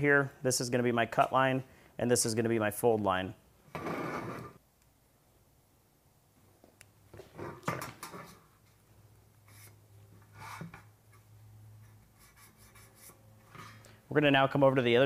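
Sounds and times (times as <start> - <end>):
scrapes on sheet metal: 3.8 - 4.6.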